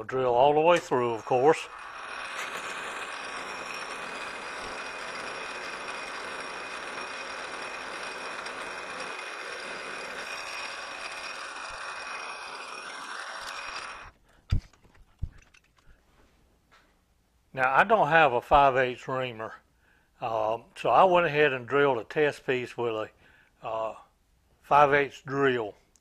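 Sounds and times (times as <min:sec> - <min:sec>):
lathe drilling with high whine: 0:00.8 - 0:14.1.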